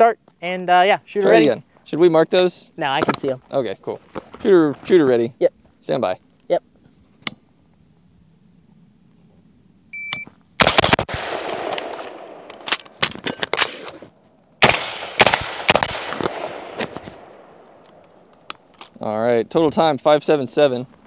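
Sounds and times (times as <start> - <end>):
shot timer beeps: 9.9 - 10.3
rifle shots echoing: 10.6 - 13.8, 14.6 - 17.8.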